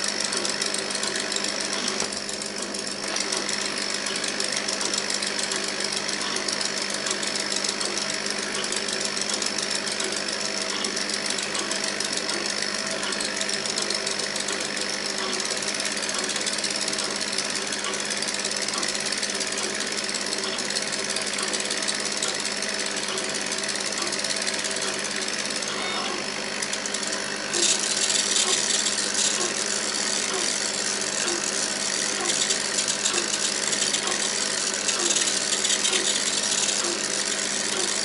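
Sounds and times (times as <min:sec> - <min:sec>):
motors chattering ticks: 0:00.0 - 0:38.0.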